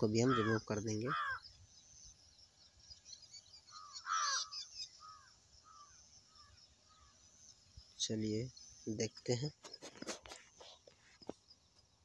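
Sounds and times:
crow cawing: 0.2 - 1.4, 3.7 - 7.2.

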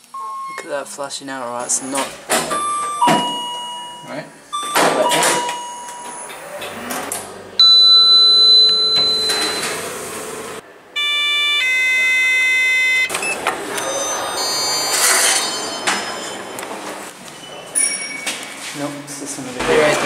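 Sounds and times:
electronic chime tone: 0.1 - 0.7, 2.5 - 6.3, 7.6 - 9.8, 11.0 - 13.1, 13.8 - 16.4
lift doors opening: 1.7 - 18.8
bell-like lift ding: 2.5 - 6.3, 7.6 - 9.8.

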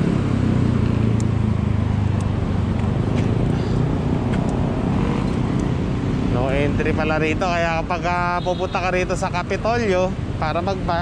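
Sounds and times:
engine hum: 0.0 - 8.3
road traffic rumble: 0.0 - 11.0.

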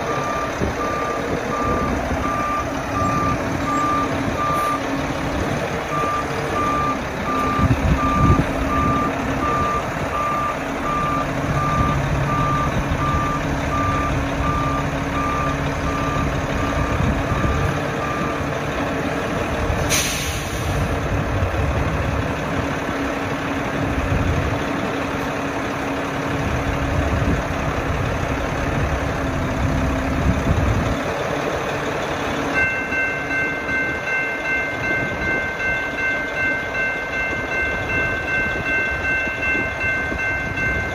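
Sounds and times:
reversing alarm beeping: 0.0 - 18.7
crossing warning bell ringing: 0.0 - 40.9
diesel engine running: 0.0 - 40.9
air hiss: 19.9 - 20.8.

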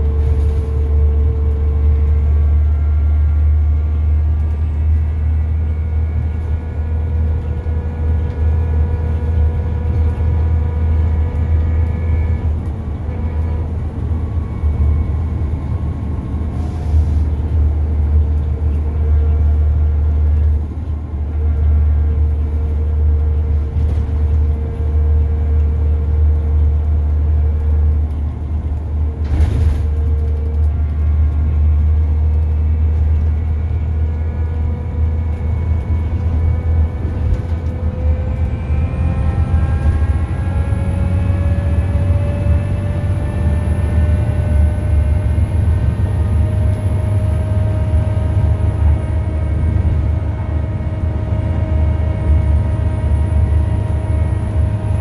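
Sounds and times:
bus engine droning under load: 0.0 - 55.0
high engine whine: 0.0 - 55.0.

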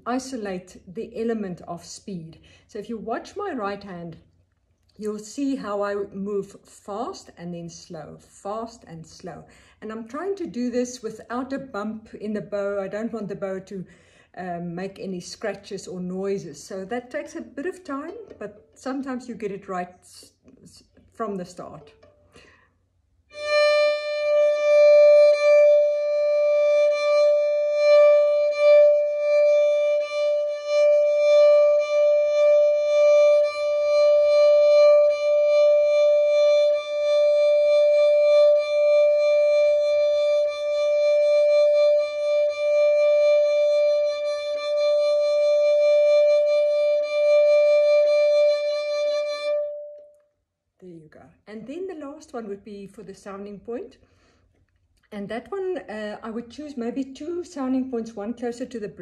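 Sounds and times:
violin sustained note: 23.3 - 50.2.

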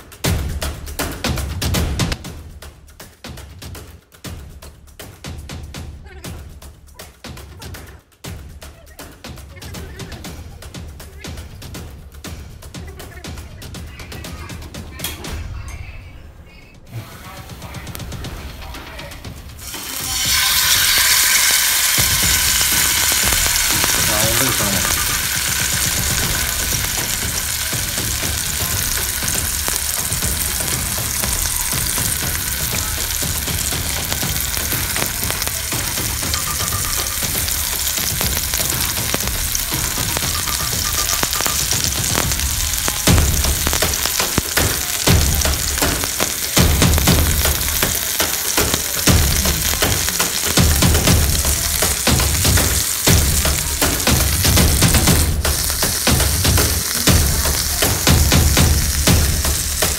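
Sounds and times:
fish sizzling in oil: 19.6 - 59.9.

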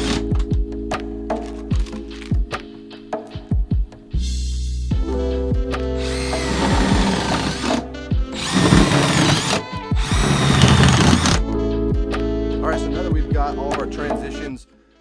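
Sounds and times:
background music with steady beat: 0.0 - 15.0
power drill running: 6.0 - 7.8, 8.4 - 11.4.

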